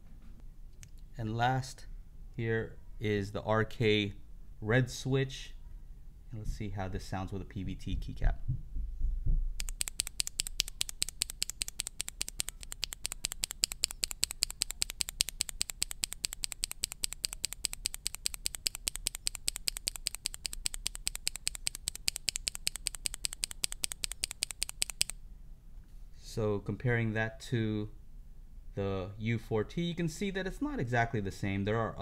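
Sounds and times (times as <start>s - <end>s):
mechanical keyboard clicks: 9.6s - 25.2s.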